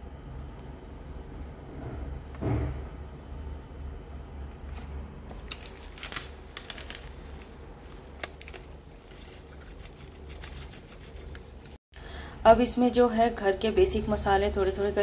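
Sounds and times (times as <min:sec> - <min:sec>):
small clicks and crackles: 0:05.4 - 0:11.7
packet crinkling: 0:05.4 - 0:11.8.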